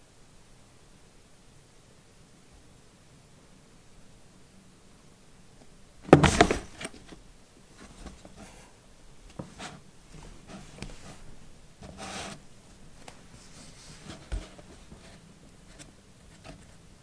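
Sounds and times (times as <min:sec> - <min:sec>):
cardboard box scraping and bumping: 0:06.1 - 0:07.1, 0:13.5 - 0:15.2
paws scratching on cardboard: 0:13.0 - 0:16.8.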